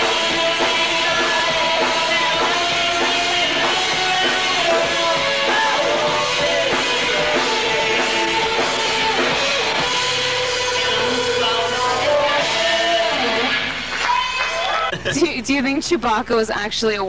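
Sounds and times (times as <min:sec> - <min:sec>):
person singing: 0:00.0 - 0:13.6
rock band playing live: 0:00.0 - 0:14.8.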